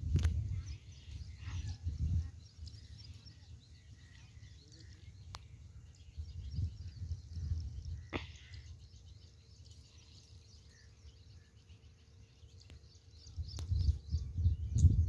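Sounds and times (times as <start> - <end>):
wind buffeting microphone: 0.0 - 3.1, 5.8 - 8.1, 13.2 - 15.0
birds chirping: 0.2 - 15.0.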